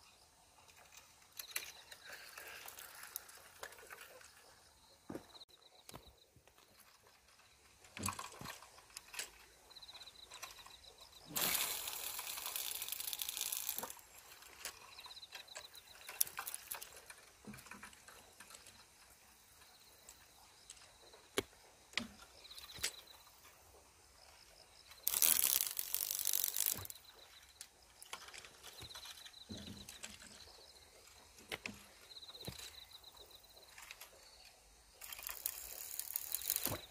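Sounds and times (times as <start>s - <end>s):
reel clicks: 7.9s - 19.0s, 24.9s - 34.2s, 35.0s - 36.9s
fishing reel whirring: 11.2s - 17.2s, 25.0s - 27.4s, 35.0s - 36.9s.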